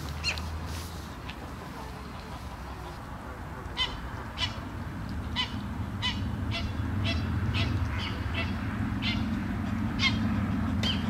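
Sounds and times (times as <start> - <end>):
bird calling in sharp calls: 5.4 - 11.0.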